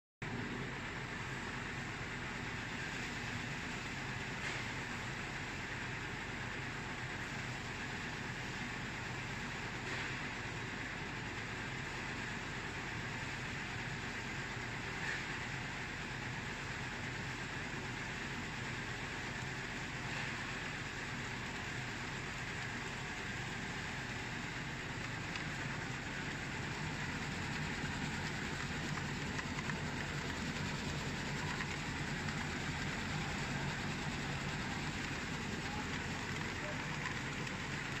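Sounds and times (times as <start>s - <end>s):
nut chopping machine running: 24.6s - 38.0s.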